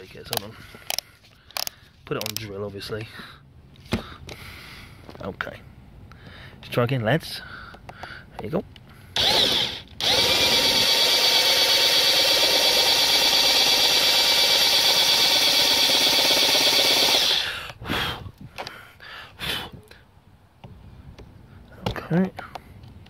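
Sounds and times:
cordless drill drilling plastic: 0:09.2 - 0:17.5.

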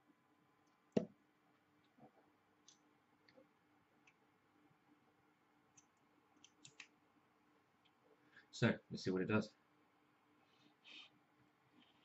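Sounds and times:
small clicks and ticks: 0:05.7 - 0:07.0.

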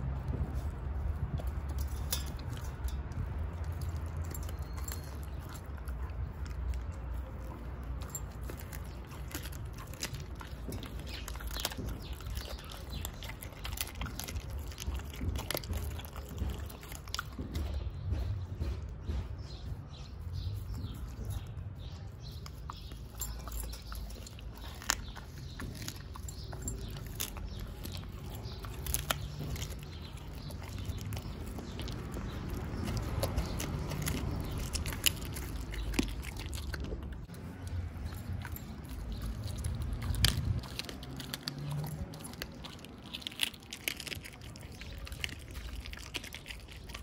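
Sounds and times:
dog crunching bones: 0:00.0 - 0:47.0.

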